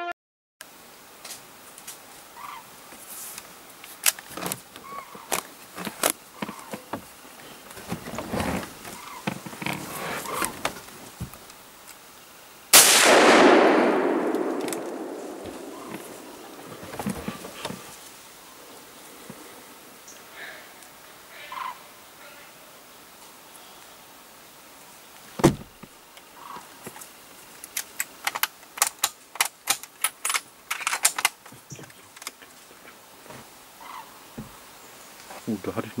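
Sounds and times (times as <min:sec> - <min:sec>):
rifle shot with rolling echo: 0:12.7 - 0:16.8
handling clicks and knocks: 0:14.3 - 0:17.9.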